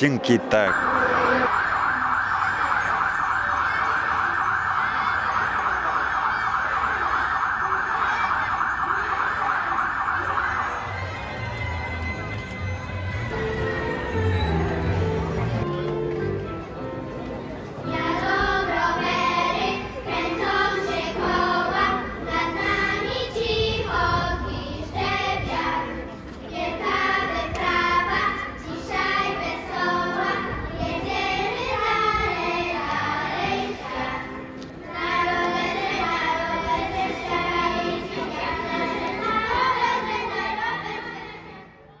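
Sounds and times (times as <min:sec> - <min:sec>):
music: 0:10.8 - 0:42.0
girls choir singing: 0:17.8 - 0:41.8.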